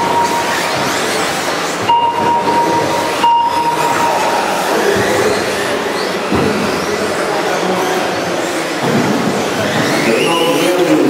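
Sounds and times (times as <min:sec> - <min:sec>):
steady high tone: 0:00.0 - 0:01.2, 0:01.8 - 0:05.0
rc cars racing: 0:00.0 - 0:11.0.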